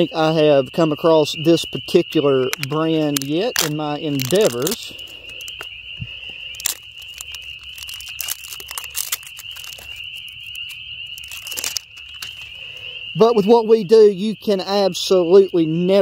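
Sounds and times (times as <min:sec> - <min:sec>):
frogs trilling: 0:00.0 - 0:16.0
plastic jar rustling: 0:02.5 - 0:05.7, 0:06.5 - 0:12.6.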